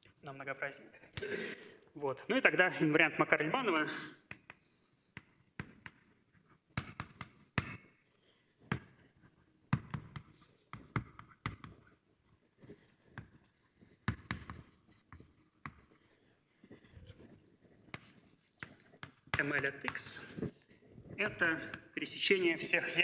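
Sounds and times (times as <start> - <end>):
writing on a board: 4.2 - 8.0, 8.6 - 22.0.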